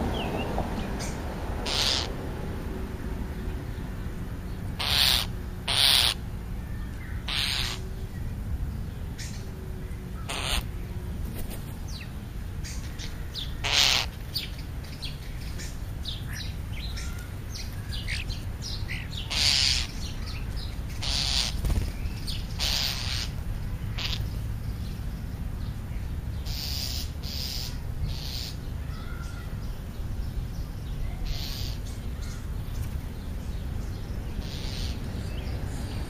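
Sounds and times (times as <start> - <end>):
small birds chirping: 0.0 - 36.0
crows cawing: 1.6 - 2.2, 4.8 - 6.2, 7.2 - 7.8, 10.2 - 10.6, 13.5 - 14.1, 19.3 - 20.4.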